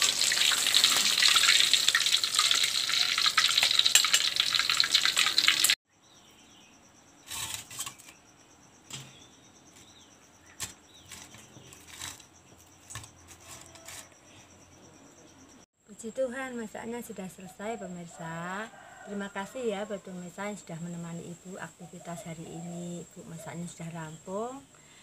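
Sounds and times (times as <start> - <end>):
fish frying in hot oil: 0.0 - 5.8
crickets trilling: 0.0 - 25.0.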